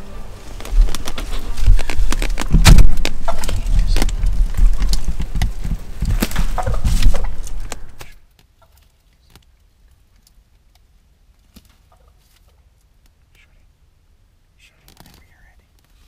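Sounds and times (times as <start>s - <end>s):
heavy low rumble: 0.0s - 8.0s
turkey clucking: 3.2s - 3.6s, 6.2s - 8.0s, 11.9s - 12.2s.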